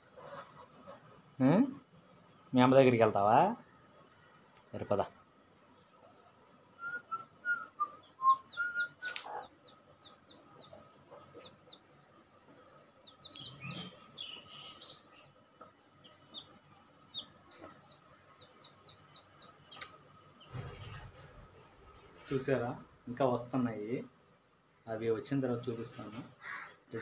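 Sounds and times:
chicks peeping: 0:08.0 - 0:12.0, 0:12.9 - 0:20.5.

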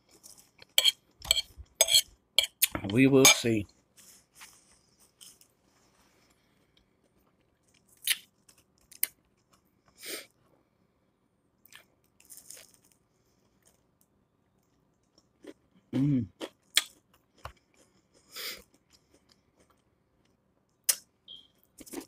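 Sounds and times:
soft chewing: 0:00.0 - 0:10.8, 0:11.6 - 0:22.0
crunching crispy food: 0:11.7 - 0:13.9.

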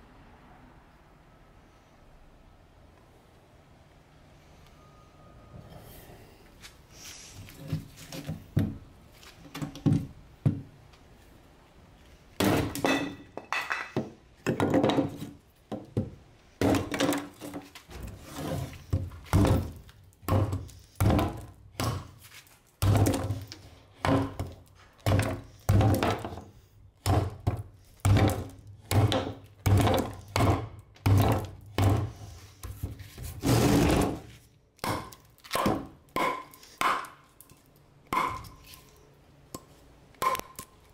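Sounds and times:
hatchet chopping wood: 0:12.4 - 0:13.1, 0:19.0 - 0:22.2, 0:22.8 - 0:26.4, 0:27.0 - 0:32.2, 0:34.8 - 0:37.2, 0:38.1 - 0:38.6, 0:40.2 - 0:40.6.

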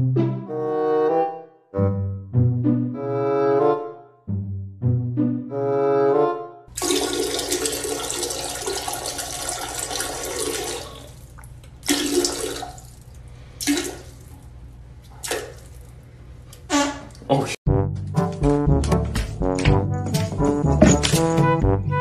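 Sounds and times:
toilet flushing: 0:06.7 - 0:14.4.

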